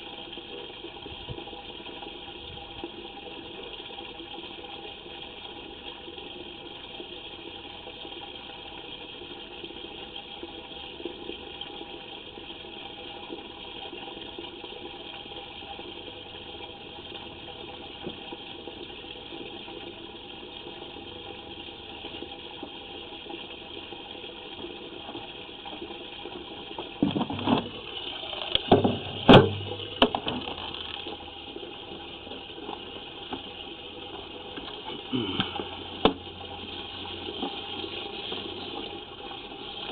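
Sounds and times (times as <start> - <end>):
water running through pipe: 0.0 - 39.9
loud knocks and clunks: 27.0 - 27.8, 28.7 - 30.4.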